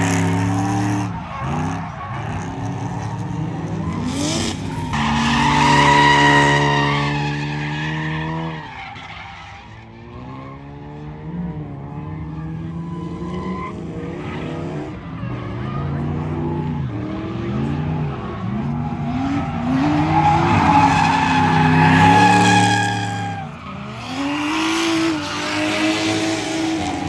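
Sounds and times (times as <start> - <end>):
car engines revving hard: 0.0 - 27.0
tyres screeching: 17.5 - 27.0.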